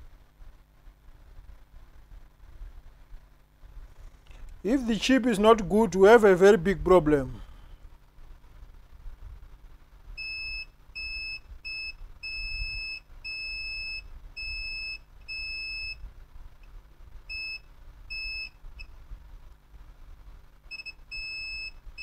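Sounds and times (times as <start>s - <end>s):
person speaking: 4.6s - 7.6s
multimeter continuity beeps: 10.2s - 16.0s, 17.3s - 18.9s, 20.7s - 22.0s.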